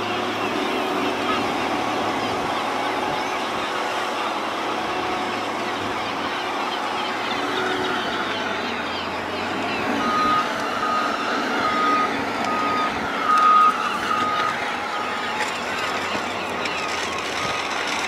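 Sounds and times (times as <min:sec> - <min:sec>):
machinery noise: 0:00.0 - 0:18.0
reversing alarm beeping: 0:09.4 - 0:18.0.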